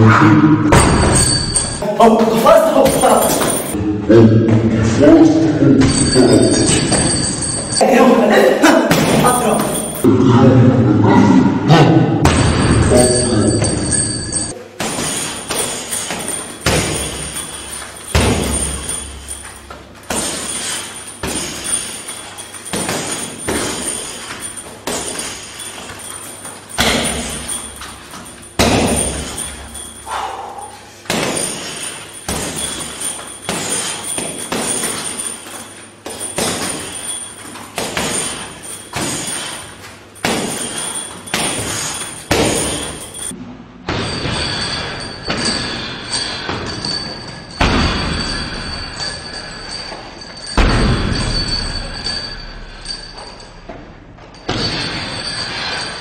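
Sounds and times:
hits thudding into punching bag: 0:18.1 - 0:19.2, 0:26.8 - 0:27.7, 0:28.6 - 0:29.7, 0:47.6 - 0:48.6, 0:50.5 - 0:52.0.

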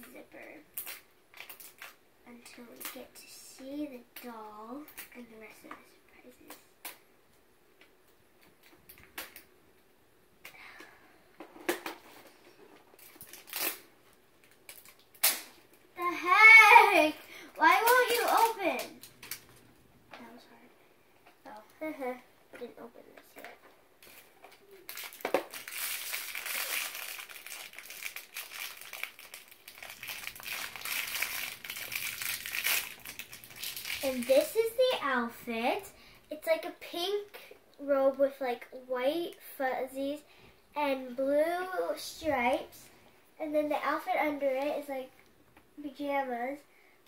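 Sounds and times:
plastic seal crinkling and tearing: 0:00.8 - 0:02.0, 0:13.0 - 0:15.5, 0:24.8 - 0:34.5.

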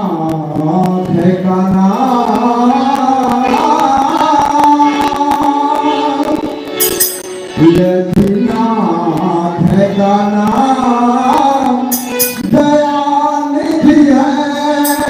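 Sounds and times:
harmonium chords: 0:00.0 - 0:15.0
dholak drum beating: 0:00.3 - 0:13.0
group singing: 0:01.1 - 0:06.8.

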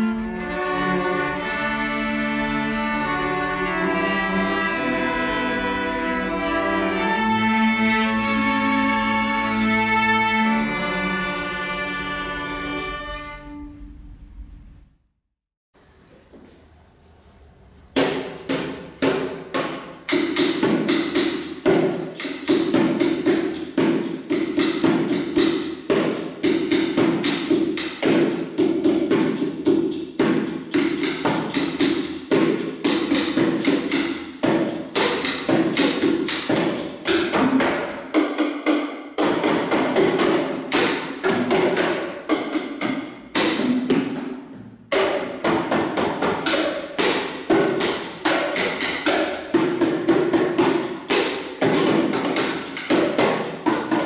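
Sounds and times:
plastic bucket drumming: 0:18.1 - 0:54.0.

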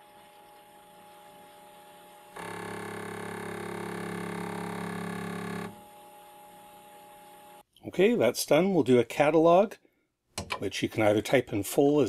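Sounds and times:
floppy drive buzzing hum: 0:00.0 - 0:07.6.

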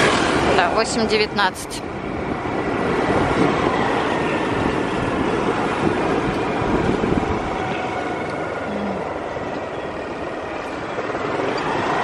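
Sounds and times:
wind noise: 0:00.0 - 0:12.0
vehicle engine: 0:05.2 - 0:12.0.

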